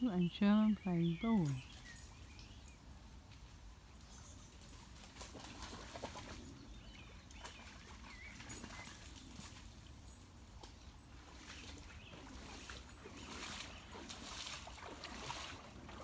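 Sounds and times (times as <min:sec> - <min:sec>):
splashing in shallow water: 0:04.5 - 0:16.0
rustling through long grass: 0:07.6 - 0:16.0.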